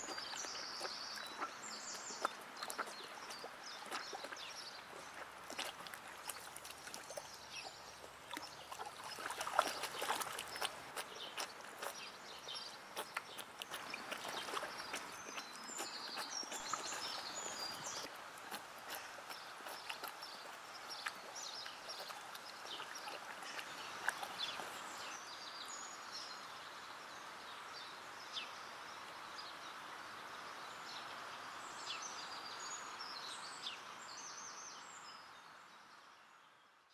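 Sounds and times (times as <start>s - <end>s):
horse slurping water: 0.0s - 25.2s
birds chirping faintly: 0.0s - 36.9s.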